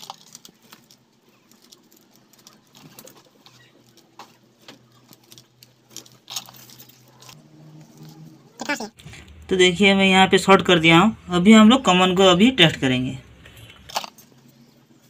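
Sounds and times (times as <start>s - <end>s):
wires rustling and clicking: 0.0s - 8.2s, 13.4s - 15.0s.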